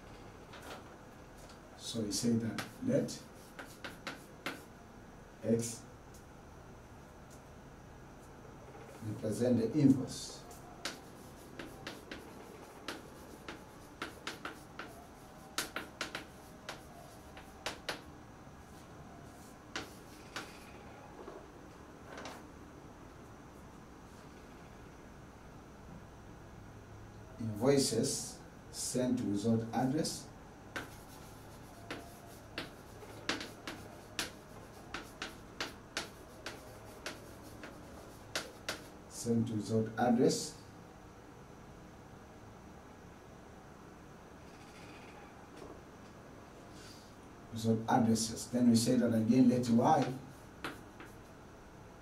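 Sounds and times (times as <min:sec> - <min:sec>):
chalk writing on a blackboard: 0:02.4 - 0:04.8, 0:10.3 - 0:18.1, 0:18.7 - 0:20.8, 0:30.0 - 0:39.2, 0:49.6 - 0:51.3.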